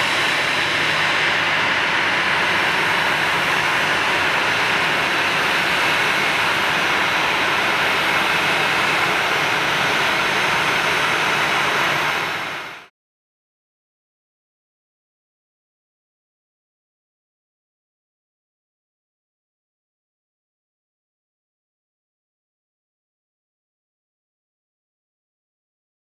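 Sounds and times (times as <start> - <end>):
jet engines running: 0.0 - 12.9.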